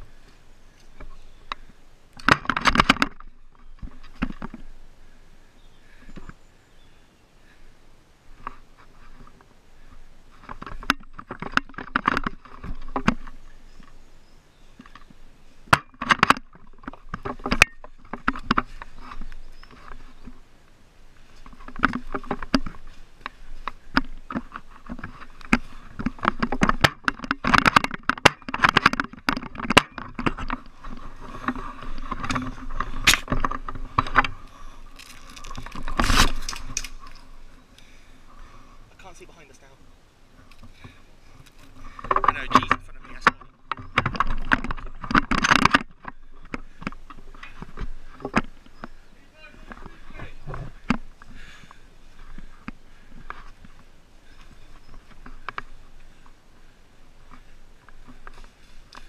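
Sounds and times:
leaves rustling and scraping: 0.0s - 59.0s
sharp knocks and clicks: 1.0s - 4.6s, 10.4s - 14.0s, 15.7s - 20.4s, 21.4s - 34.4s, 41.5s - 48.9s
footsteps on leaves: 30.6s - 37.6s.

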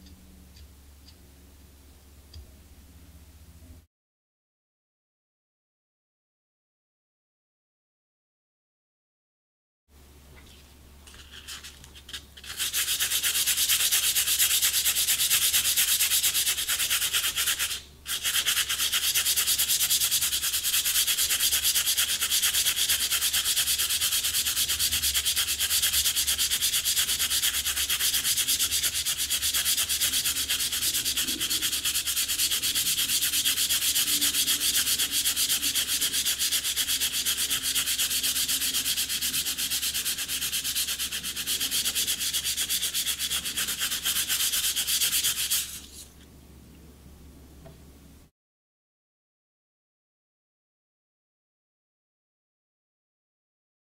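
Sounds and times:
sandpaper scratching on reed: 12.4s - 46.1s.

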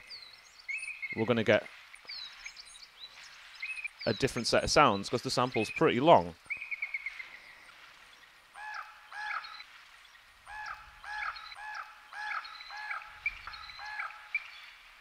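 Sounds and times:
bird's rising-and-falling call: 8.6s - 9.7s, 10.4s - 14.7s
faint high bird chirps: 10.5s - 14.8s.

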